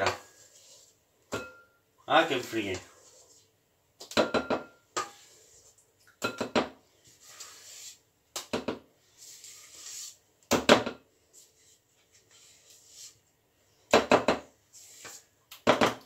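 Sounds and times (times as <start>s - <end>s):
spatula scraping metal bowl: 0.0s - 3.5s, 4.7s - 5.8s, 7.0s - 8.1s, 9.0s - 10.2s, 14.7s - 15.3s.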